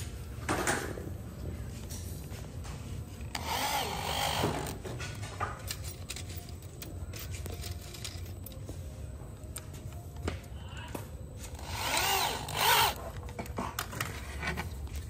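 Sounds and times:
electric drill motor whirring: 3.3 - 4.8, 11.5 - 13.1.

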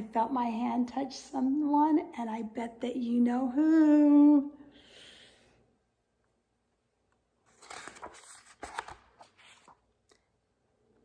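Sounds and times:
book pages turning: 7.4 - 10.3.

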